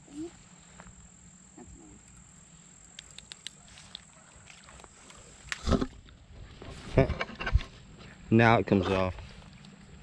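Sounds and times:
crickets chirping: 0.0 - 10.0
faint clicks: 2.8 - 4.1.

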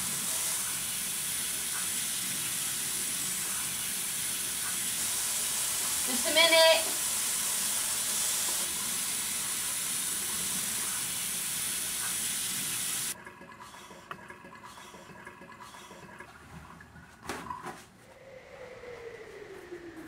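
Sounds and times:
faucet running into steel sink: 0.0 - 14.3.

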